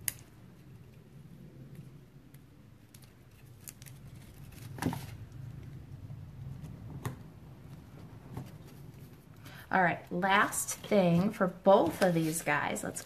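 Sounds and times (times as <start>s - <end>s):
low steady hum: 0.0s - 13.0s
paper rustling and clicks: 2.8s - 5.4s
paper crinkle: 2.8s - 5.5s, 10.8s - 13.0s.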